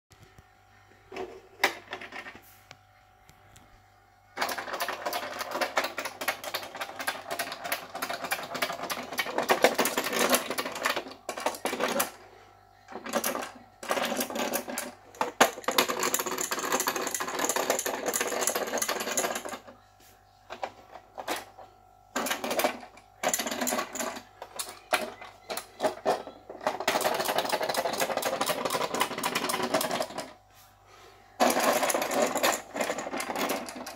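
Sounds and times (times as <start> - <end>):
toy mechanical rattle: 4.4 - 12.2, 12.9 - 19.7, 22.2 - 30.4, 31.4 - 33.9.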